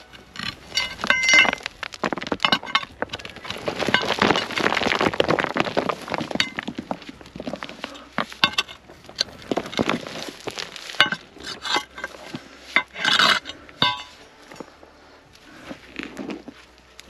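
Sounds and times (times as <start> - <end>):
metal bar clinking on stones: 0.0 - 1.7, 8.4 - 9.8, 12.8 - 14.7
soil and stones sliding: 0.0 - 17.0.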